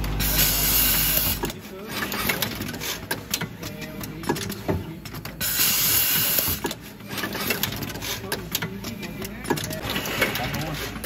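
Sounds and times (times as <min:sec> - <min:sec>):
machine clicks and knocks: 0:01.2 - 0:05.5, 0:06.2 - 0:11.0.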